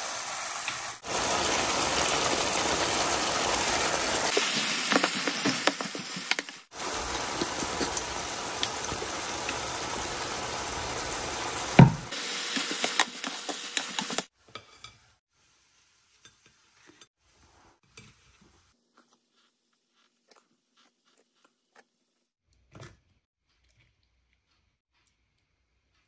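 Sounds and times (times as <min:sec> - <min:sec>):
sauce sizzling in a frying pan: 0:00.0 - 0:14.3
spoon stirring: 0:12.2 - 0:14.9.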